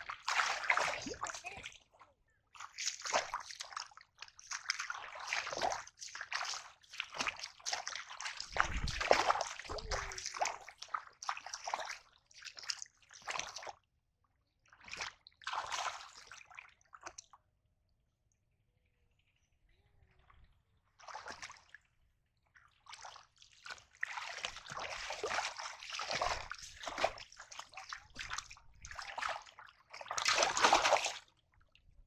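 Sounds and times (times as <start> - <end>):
muddy water splashing: 0.0 - 2.0, 2.6 - 13.7, 14.8 - 17.2, 21.0 - 21.8, 22.8 - 31.3.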